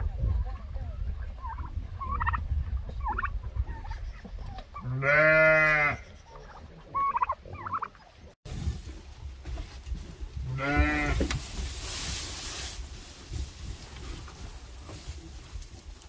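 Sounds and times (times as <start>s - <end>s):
turkeys yelping: 1.2s - 5.0s, 5.9s - 8.3s
sheep or goat bleat: 4.9s - 6.0s, 10.5s - 11.2s.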